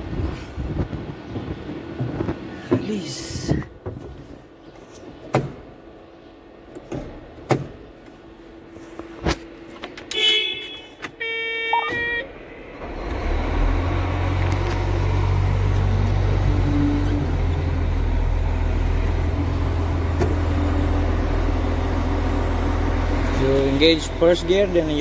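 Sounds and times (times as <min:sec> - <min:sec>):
diesel engine rumbling: 0:11.2 - 0:25.0
short electronic beeps: 0:11.6 - 0:12.3.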